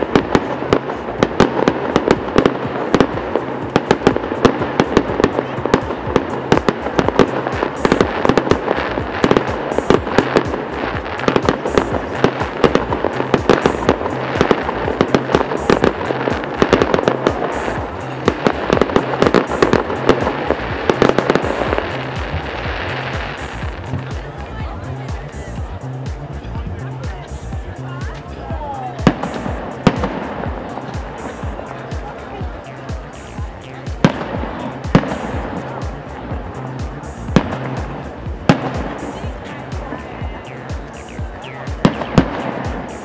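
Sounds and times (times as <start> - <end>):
fireworks bangs and crackles: 0.0 - 43.0.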